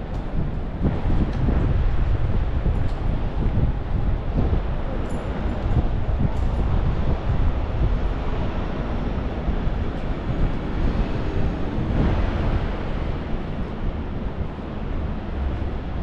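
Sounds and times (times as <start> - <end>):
wind blowing across microphone: 0.0 - 16.0.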